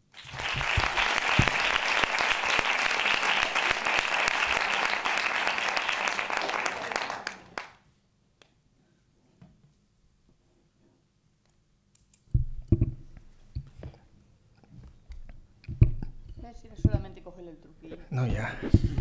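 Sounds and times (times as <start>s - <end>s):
audience applause: 0.0s - 7.8s.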